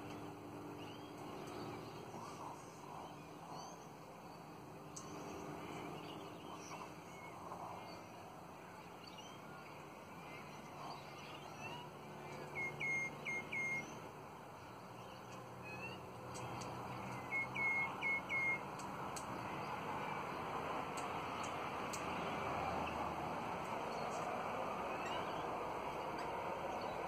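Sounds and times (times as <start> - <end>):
soft bird chirps: 0.0 - 27.0.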